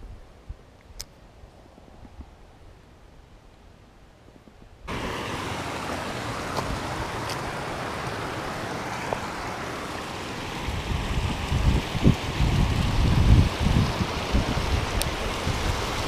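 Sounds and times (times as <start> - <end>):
water rushing over a weir: 4.9 - 16.0.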